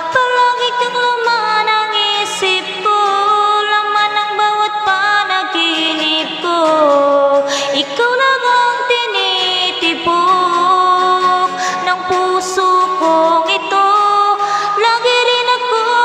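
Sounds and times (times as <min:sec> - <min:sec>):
woman singing into microphone: 0:00.0 - 0:16.0
acoustic guitar strumming: 0:05.3 - 0:15.9.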